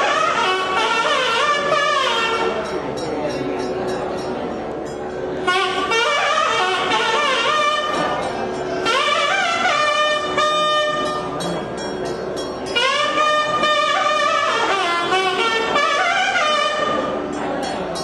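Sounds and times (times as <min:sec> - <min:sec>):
steady drone note: 0:00.0 - 0:03.0, 0:04.4 - 0:18.0
double-reed pipe melody: 0:00.0 - 0:18.0.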